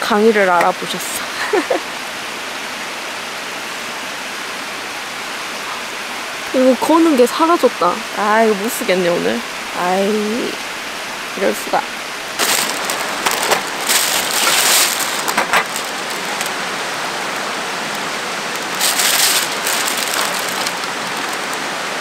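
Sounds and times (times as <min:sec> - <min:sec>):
stream rushing: 0:00.0 - 0:22.0
plastic bag crinkling: 0:12.4 - 0:21.6.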